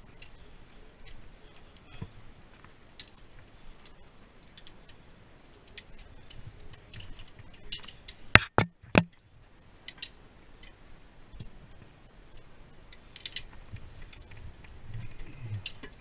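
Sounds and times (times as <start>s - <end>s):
carabiners clicking: 3.0s - 5.0s, 12.9s - 16.0s
sharp knocks: 8.4s - 9.2s.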